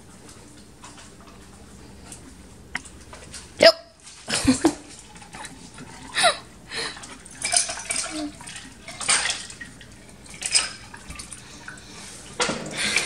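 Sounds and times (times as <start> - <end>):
liquid splashing into glasses: 6.9 - 13.0.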